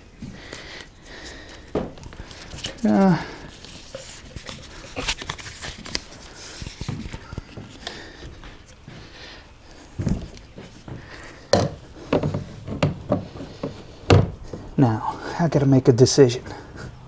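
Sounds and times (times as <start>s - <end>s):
sharp knocks: 11.5s - 14.4s
dull thump: 11.5s - 14.6s.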